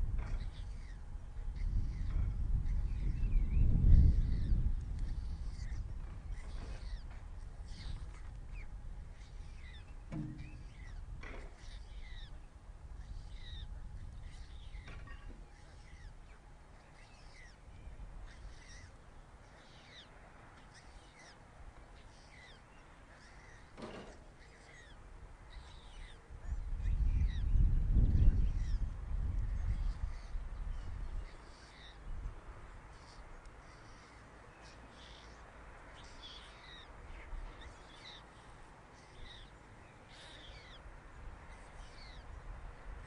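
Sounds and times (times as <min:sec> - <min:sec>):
small songbirds chirping: 0:00.0 - 0:43.0
faint knocks: 0:10.1 - 0:11.6.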